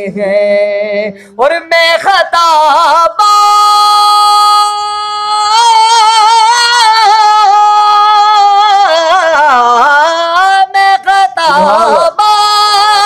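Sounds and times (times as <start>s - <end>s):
man singing unaccompanied: 0.0s - 13.0s
man breathing: 1.2s - 1.4s.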